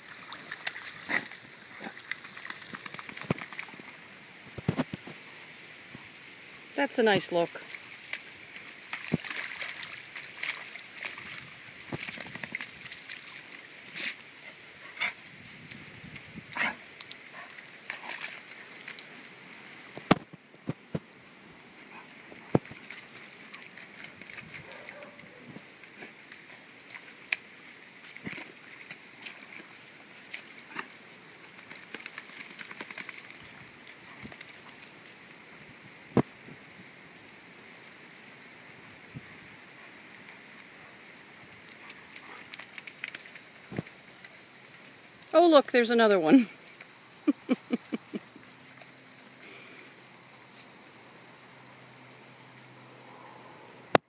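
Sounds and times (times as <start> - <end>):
dogs splashing in puddle: 0.0 - 5.2, 7.0 - 20.3, 21.8 - 35.3, 39.6 - 45.4.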